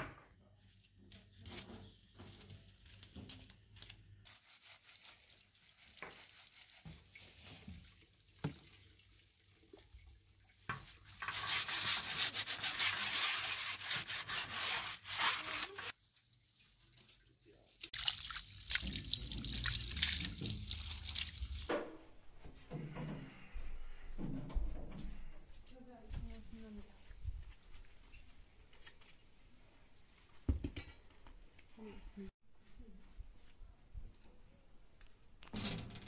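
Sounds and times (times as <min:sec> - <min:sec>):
water splashing from hose: 0:04.4 - 0:11.8, 0:17.8 - 0:21.7
metal pot being scrubbed: 0:10.7 - 0:16.0.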